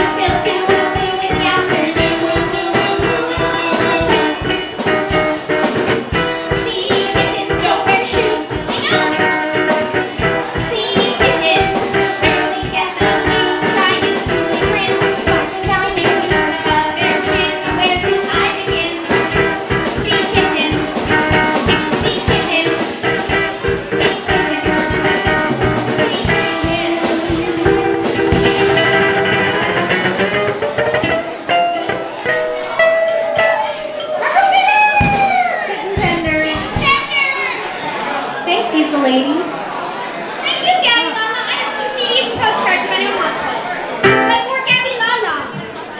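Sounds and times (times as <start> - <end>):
women singing: 0.0 - 4.6, 6.5 - 9.4, 10.2 - 22.9, 23.9 - 28.7
ukuleles strumming: 0.0 - 35.4, 44.0 - 45.2
drum kit: 0.0 - 37.2, 44.0 - 45.8.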